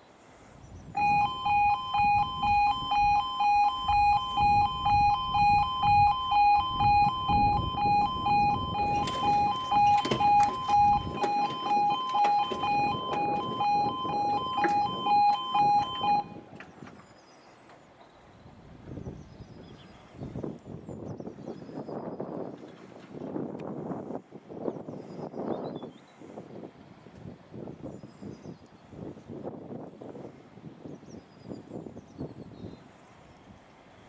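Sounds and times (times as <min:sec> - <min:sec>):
two-tone crossing alarm: 0:01.0 - 0:16.6.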